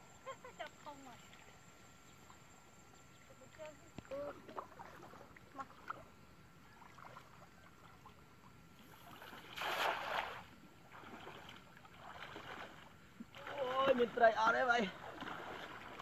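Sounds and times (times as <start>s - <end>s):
people wading in water: 0.1s - 16.0s
net splashing into water: 9.0s - 14.0s, 14.8s - 16.0s.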